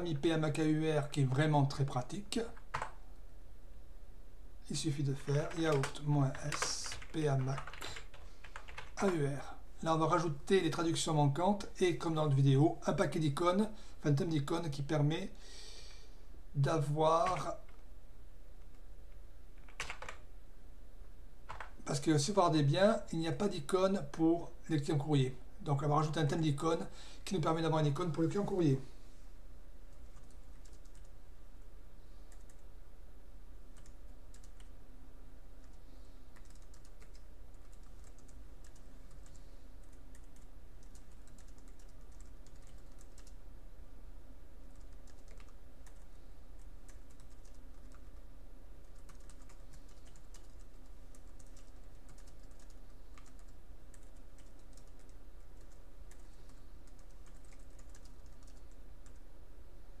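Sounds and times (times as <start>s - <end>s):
steady low hum: 0.0s - 60.0s
keyboard typing clicks: 2.6s - 3.0s, 5.5s - 9.1s, 19.6s - 20.2s, 21.5s - 21.7s, 33.8s - 34.7s, 36.4s - 43.4s, 44.7s - 48.2s, 48.8s - 59.2s.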